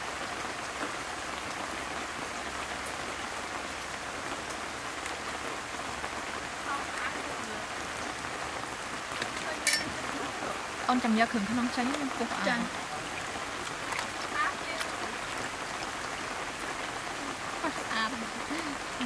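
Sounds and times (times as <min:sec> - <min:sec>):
steady hiss of running water: 0:00.0 - 0:19.0
faint splashes and ticks: 0:13.1 - 0:15.9.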